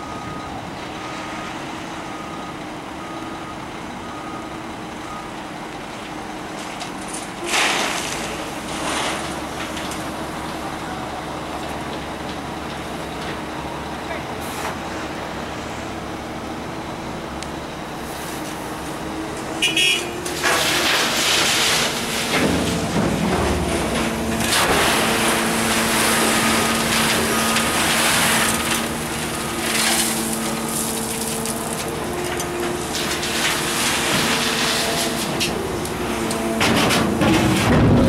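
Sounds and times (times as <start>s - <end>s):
excavator diesel engine under load: 0.0s - 38.0s
gravel scraping and rattling on steel: 6.5s - 10.6s, 20.2s - 38.0s.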